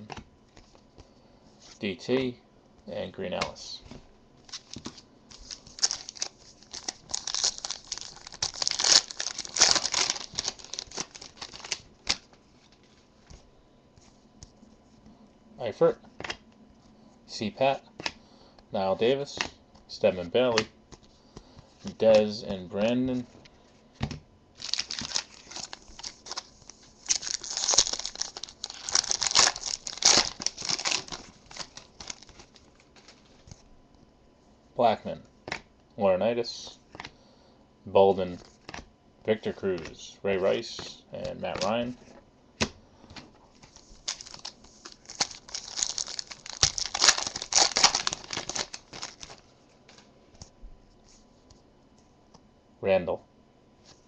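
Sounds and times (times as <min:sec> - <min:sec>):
foil wrapper tearing and crinkling: 0:04.5 - 0:12.3, 0:24.6 - 0:33.4, 0:44.0 - 0:49.4.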